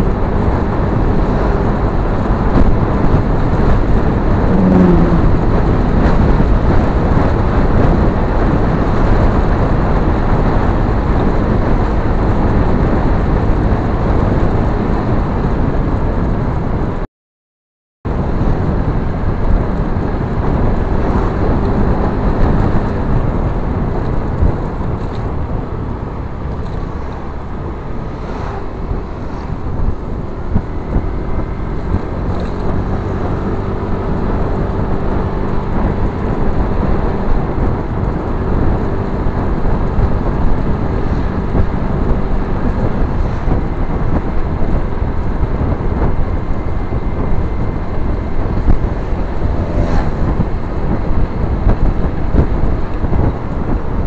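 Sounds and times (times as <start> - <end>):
motorbike engine hum: 0.0 - 17.0, 18.1 - 54.0
wind rumble on microphone: 0.0 - 17.0, 18.1 - 54.0.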